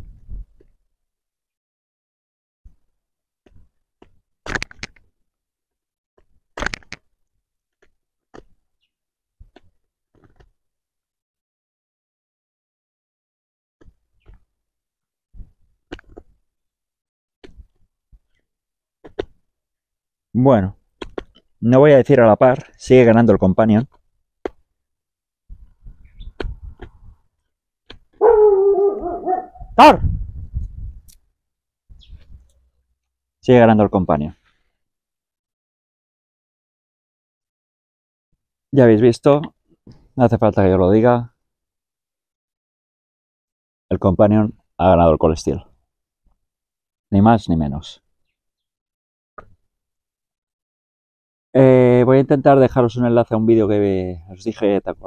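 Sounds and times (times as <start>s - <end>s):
dog barking: 28.2s - 29.7s
dog whining: 28.2s - 29.8s.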